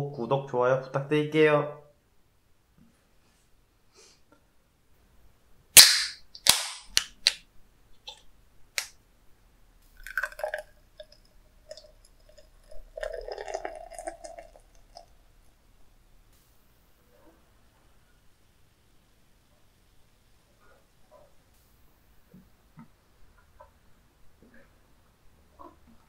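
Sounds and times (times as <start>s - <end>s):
can cracked open with pop and hiss: 5.7s - 7.4s
beer pouring into glass: 9.9s - 15.3s.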